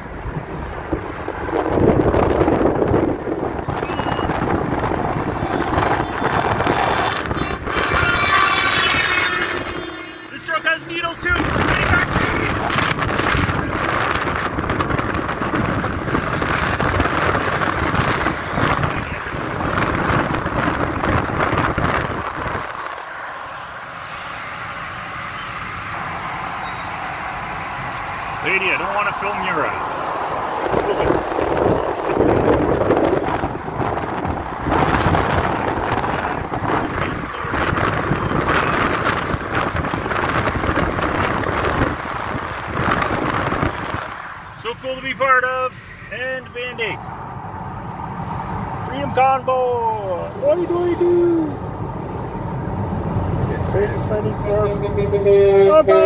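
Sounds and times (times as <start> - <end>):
wind buffeting microphone: 0.0 - 10.1, 11.1 - 23.2, 27.6 - 44.5
car engine and tyre rumble: 0.0 - 56.0
vehicle road noise: 0.0 - 56.0.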